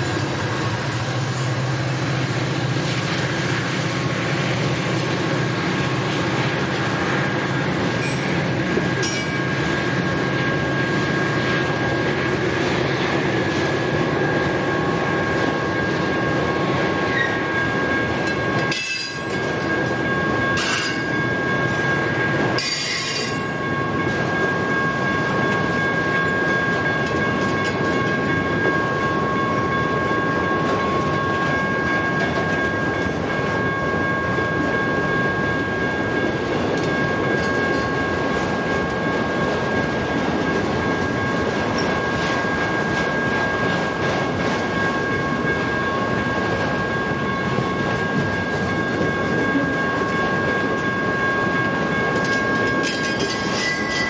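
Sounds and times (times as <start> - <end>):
train wheels rumbling on rail: 0.0 - 54.0
high-pitched wheel squeal: 52.8 - 54.0.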